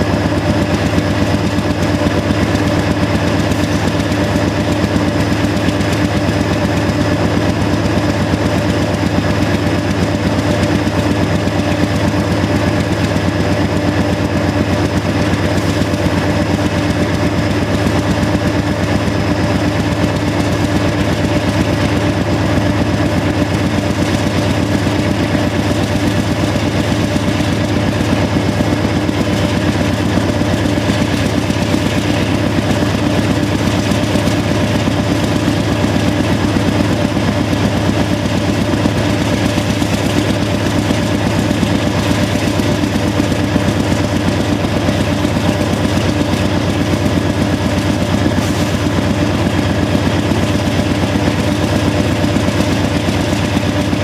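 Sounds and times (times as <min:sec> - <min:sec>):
locomotive diesel engines working hard: 0:00.0 - 0:54.0.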